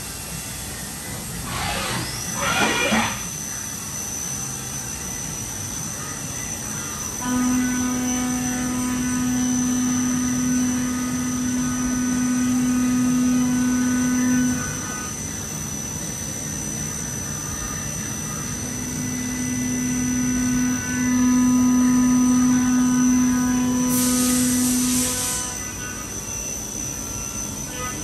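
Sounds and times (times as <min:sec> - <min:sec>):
high machine whine: 0:00.0 - 0:28.0
milling machine cutting tone: 0:01.0 - 0:04.1, 0:06.8 - 0:15.4, 0:17.7 - 0:28.0
coolant hiss: 0:23.9 - 0:25.4.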